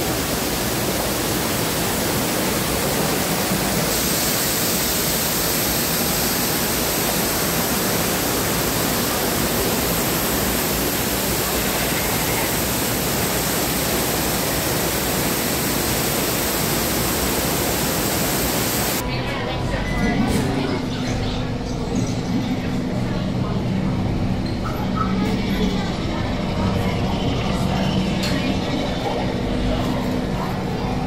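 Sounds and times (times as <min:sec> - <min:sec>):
waterfall rushing: 0:00.0 - 0:19.0.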